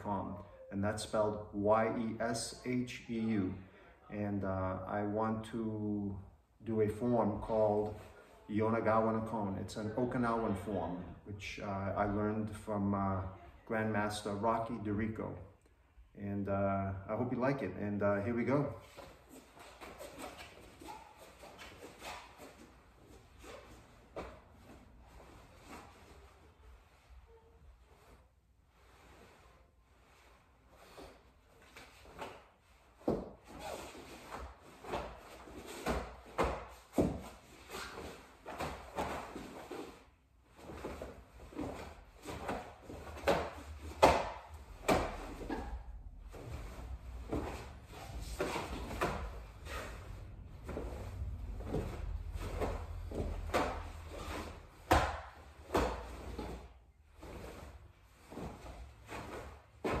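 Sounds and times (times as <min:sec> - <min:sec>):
staff swishing through air: 0:40.6 - 1:00.0.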